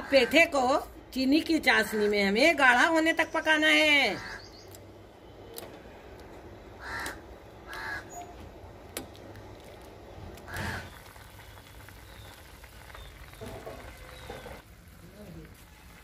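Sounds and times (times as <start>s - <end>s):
crow cawing: 4.2s - 4.5s, 6.8s - 8.2s, 10.5s - 11.0s
syrup bubbling in a pot: 8.6s - 16.0s.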